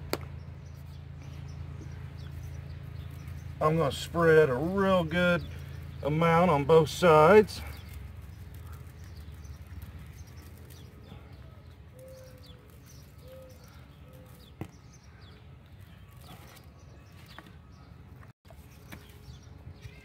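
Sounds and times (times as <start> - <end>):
low steady rumble: 0.0 - 14.4
small birds chirping: 0.0 - 20.0.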